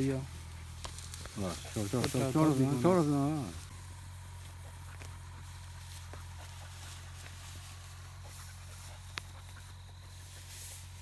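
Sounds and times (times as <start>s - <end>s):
even hiss: 0.0s - 11.0s
faint ticks: 8.8s - 9.7s.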